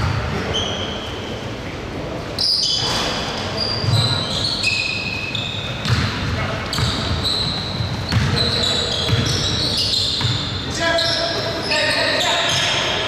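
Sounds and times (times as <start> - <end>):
sneakers squeaking on hardwood: 2.4 - 13.0
basketball bouncing: 5.8 - 10.5.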